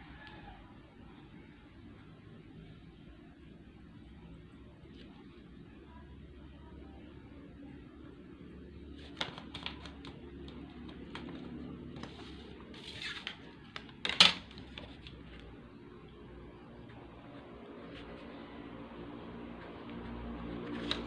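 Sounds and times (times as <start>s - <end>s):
sliding rustle on paper: 9.0s - 13.9s, 19.7s - 21.0s.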